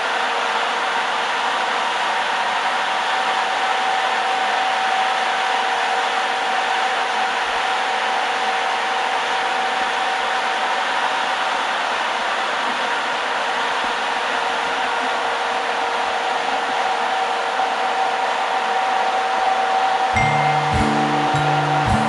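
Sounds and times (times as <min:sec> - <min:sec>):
steady whine: 0:12.2 - 0:22.0.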